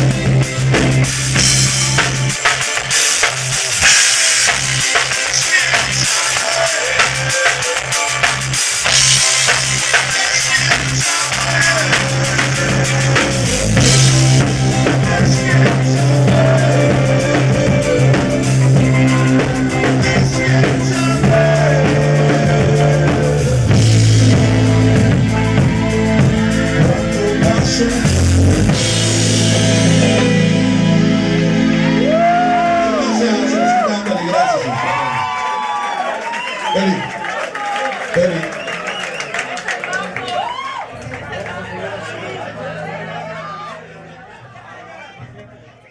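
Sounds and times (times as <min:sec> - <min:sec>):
drum kit: 0:00.0 - 0:33.9
electric bass: 0:00.0 - 0:33.9
keyboards: 0:00.0 - 0:45.9.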